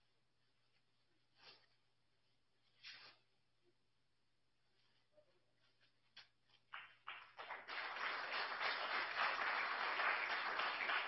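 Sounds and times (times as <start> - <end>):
audience applause: 6.8 - 11.0.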